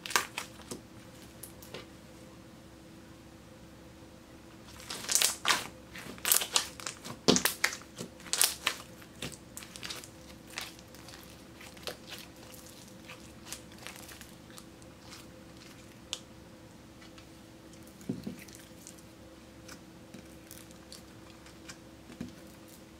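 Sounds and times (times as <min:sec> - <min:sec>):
slime crackling and popping: 0:00.0 - 0:00.8, 0:04.8 - 0:16.2.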